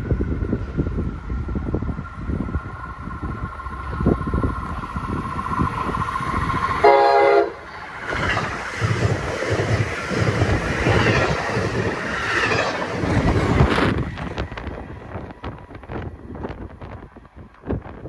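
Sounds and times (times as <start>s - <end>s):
train wheels clattering on rails: 3.3s - 18.0s
train horn blast: 6.8s - 7.7s.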